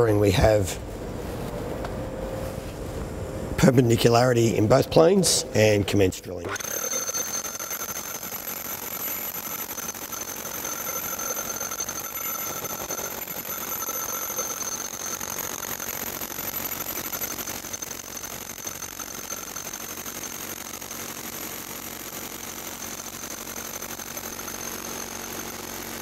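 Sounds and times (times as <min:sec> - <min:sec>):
rotary hammer drill boring concrete: 0:06.5 - 0:26.0.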